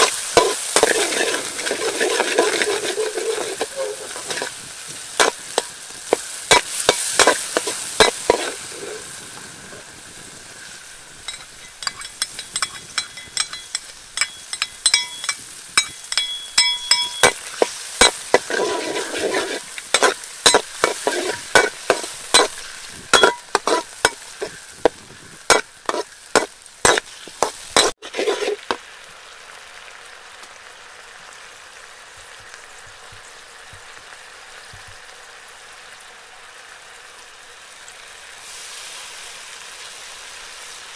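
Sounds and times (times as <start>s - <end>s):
metal spatula scraping wok: 0.0s - 9.2s, 11.2s - 28.8s
garlic sizzling in hot oil: 0.0s - 40.9s.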